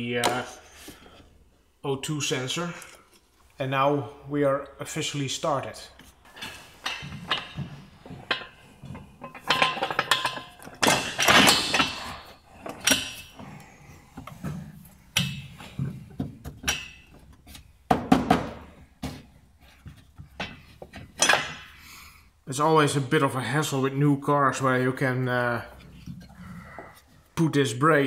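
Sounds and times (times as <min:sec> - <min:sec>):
metallic clanks of tools: 0:05.9 - 0:13.6, 0:14.2 - 0:17.2, 0:20.4 - 0:21.7.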